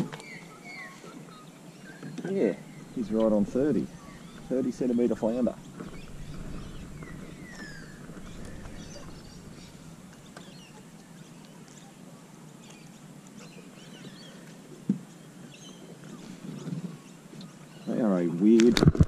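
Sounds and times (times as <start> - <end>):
ambient noise: 0.0 - 13.9
birds whistling and chirping: 0.0 - 18.3.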